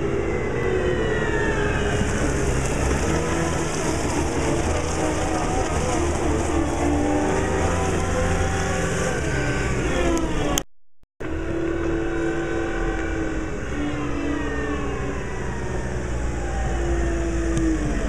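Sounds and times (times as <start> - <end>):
diesel engine running: 0.0 - 10.6.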